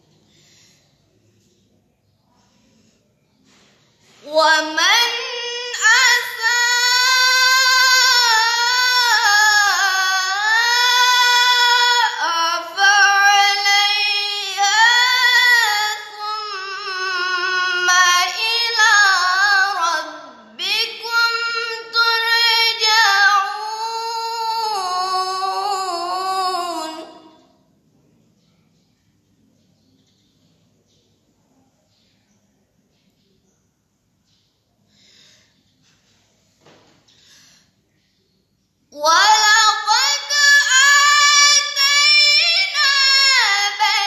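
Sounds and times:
girl reciting melodically: 2.4s - 27.6s, 38.9s - 44.0s.

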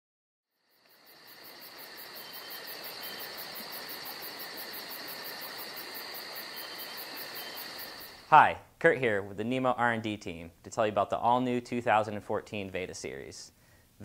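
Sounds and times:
fast pulsing insect chirp: 0.5s - 8.4s
insect drone: 0.5s - 8.4s.

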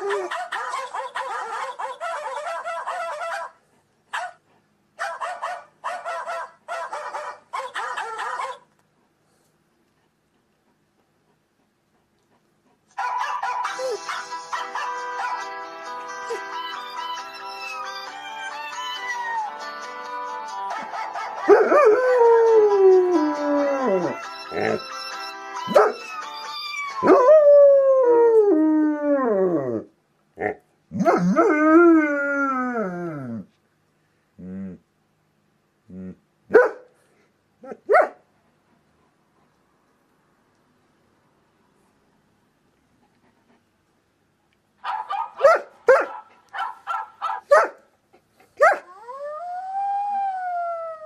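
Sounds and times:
dog crying: 0.0s - 3.6s, 5.0s - 8.7s, 23.9s - 27.2s
dog yelp: 0.0s - 4.4s, 5.0s - 8.7s, 13.0s - 14.2s, 25.7s - 26.1s, 44.8s - 47.8s
dog howling: 21.5s - 24.9s.

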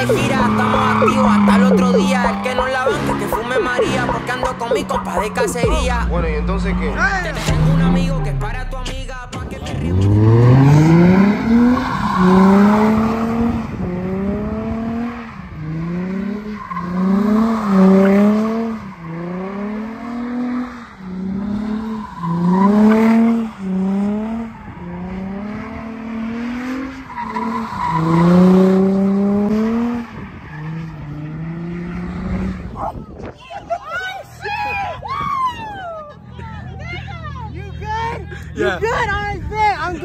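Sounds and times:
tyres squealing and skidding: 0.0s - 8.1s, 9.6s - 13.7s, 14.5s - 39.1s
car engine revving: 0.0s - 32.8s.

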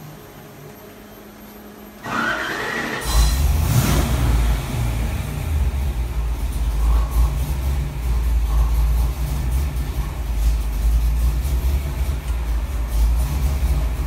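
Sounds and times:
engine idling loudly: 2.0s - 14.0s
engine starter whirring: 2.0s - 14.0s.

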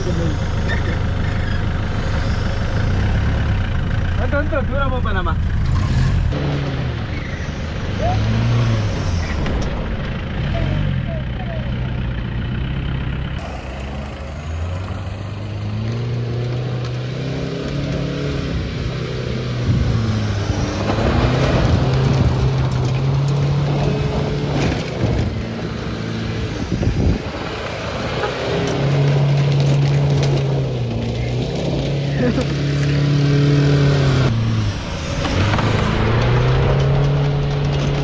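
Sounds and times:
diesel engine revving: 0.0s - 38.0s
knocks and rattles: 35.1s - 38.0s.

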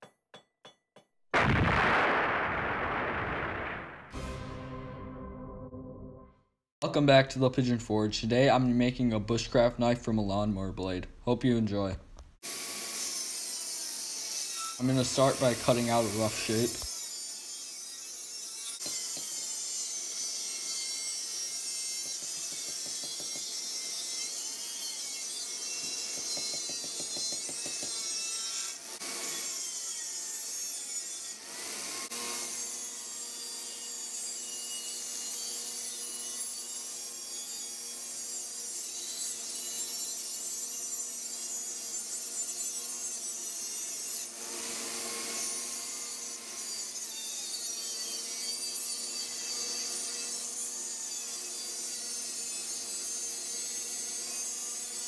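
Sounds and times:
angle grinder cutting steel: 12.4s - 55.0s.

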